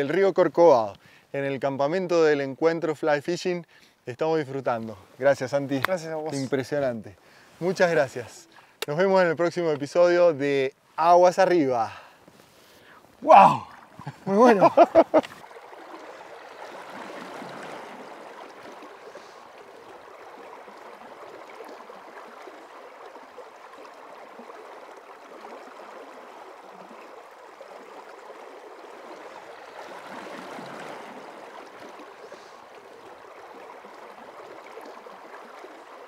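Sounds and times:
river water rushing: 12.6s - 36.0s.

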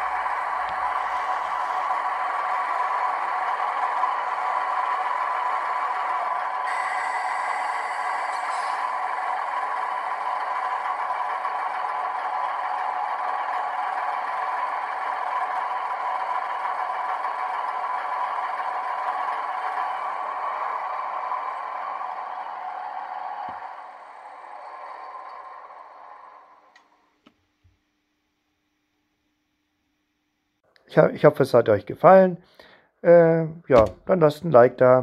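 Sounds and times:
diesel engine sound through small speakers: 0.0s - 26.7s.

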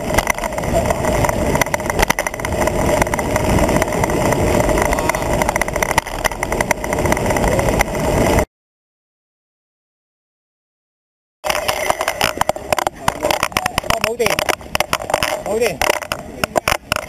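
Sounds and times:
road rumble: 0.0s - 8.5s, 11.4s - 17.0s
wind buffeting: 0.0s - 8.5s.

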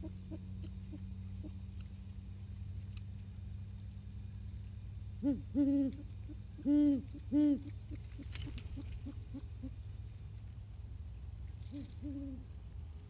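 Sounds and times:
owl hooting: 0.0s - 1.6s, 5.2s - 9.8s, 11.7s - 12.5s.

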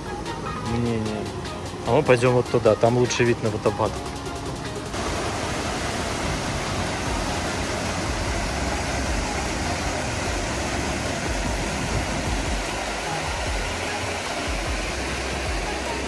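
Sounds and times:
waterfall roaring: 4.9s - 16.0s.

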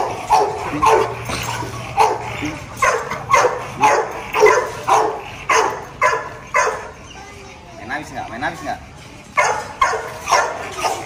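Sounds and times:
dog barking: 0.0s - 1.2s, 2.0s - 7.0s, 9.4s - 11.0s.

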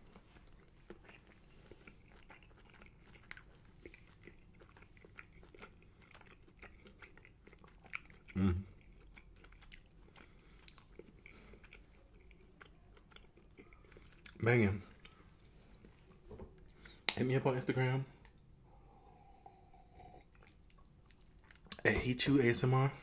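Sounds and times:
wet mouth chewing sounds: 0.1s - 17.2s, 19.2s - 21.8s.

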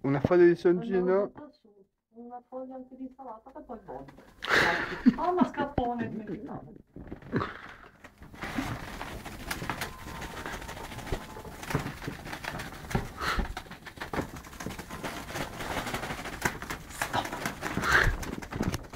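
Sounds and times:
cats scuffling and scratching: 7.0s - 18.9s.

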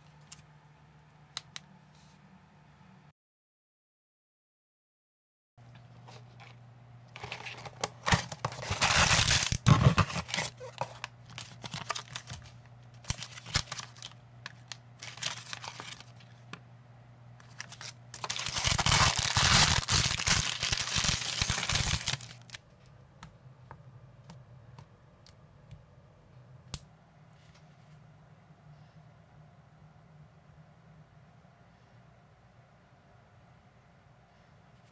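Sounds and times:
packaging tearing and rustling: 7.2s - 16.3s, 17.4s - 22.6s.

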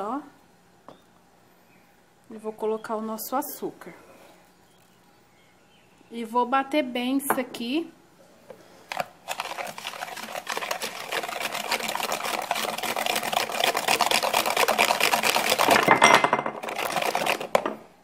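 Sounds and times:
whisk rattling against bowl: 9.3s - 17.7s.

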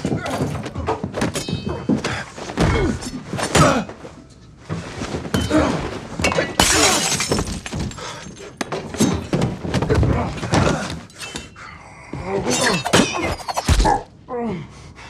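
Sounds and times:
glass smashing: 6.2s - 9.3s.

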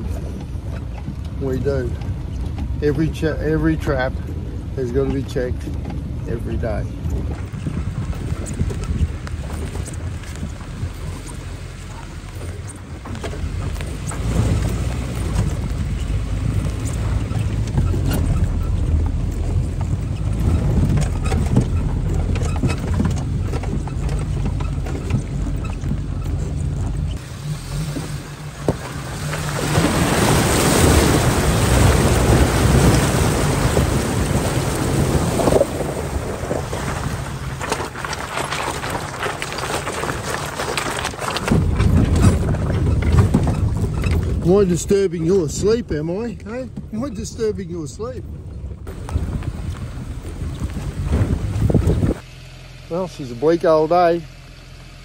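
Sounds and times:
wind and rain rushing: 0.0s - 52.3s
buggy engine rumble: 0.0s - 55.0s
knocks and rattles: 5.0s - 47.5s.

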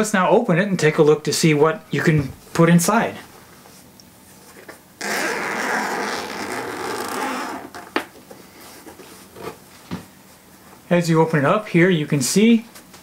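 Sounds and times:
zipper being pulled open: 5.0s - 7.9s.

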